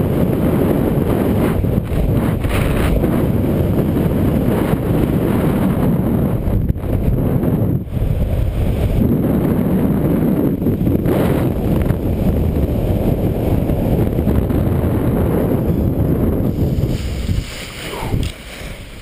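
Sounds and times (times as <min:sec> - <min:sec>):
wind rushing over microphone: 0:00.0 - 0:19.0.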